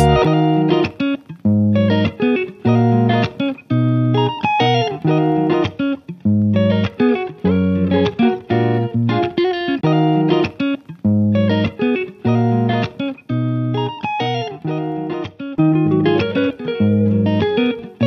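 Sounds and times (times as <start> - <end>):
background music chords with bass: 0.0 - 0.6.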